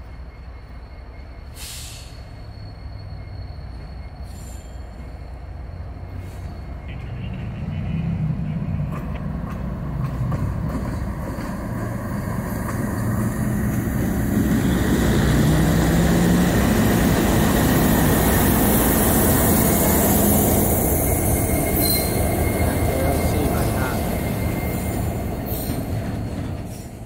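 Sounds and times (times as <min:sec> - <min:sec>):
diesel locomotive engine drone: 0:00.0 - 0:27.0
steel wheels hissing on rail: 0:01.4 - 0:06.8, 0:11.2 - 0:27.0.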